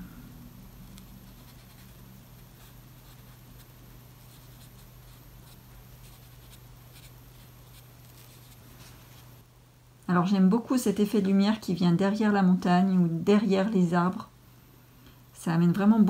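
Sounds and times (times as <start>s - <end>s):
steady low hum: 0.0s - 16.0s
paintbrush scratching on paper: 1.0s - 9.4s.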